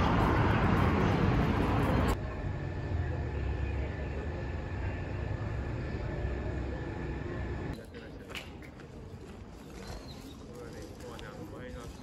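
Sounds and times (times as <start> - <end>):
loud traffic noise: 0.0 - 7.7.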